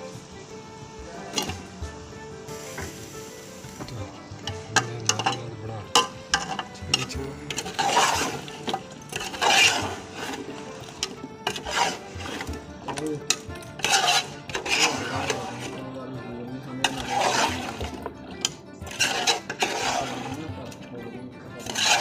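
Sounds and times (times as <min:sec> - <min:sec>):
ladle scraping pot sides: 0:01.0 - 0:15.9, 0:16.7 - 0:20.8, 0:21.6 - 0:22.0
ladle clinking against pot: 0:04.4 - 0:15.8, 0:16.8 - 0:20.4.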